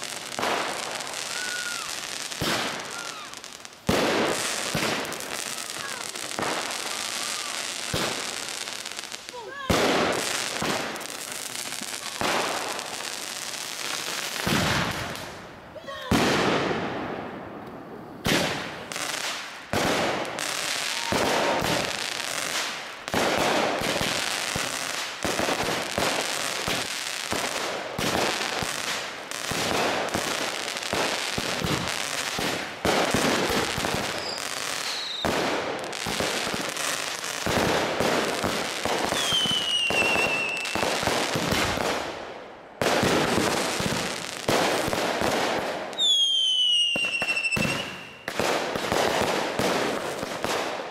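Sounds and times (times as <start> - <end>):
fireworks crackling: 0.0 - 50.9
falling firework whistle: 1.0 - 3.4, 20.7 - 21.8, 34.1 - 35.4, 39.2 - 40.8, 46.0 - 48.3.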